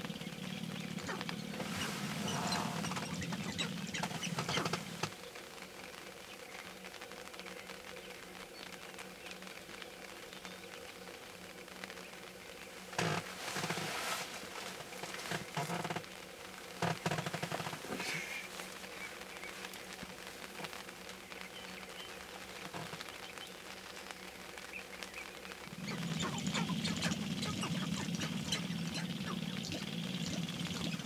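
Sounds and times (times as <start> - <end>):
grouse rapid rattling: 0.0 - 5.1, 25.6 - 31.0.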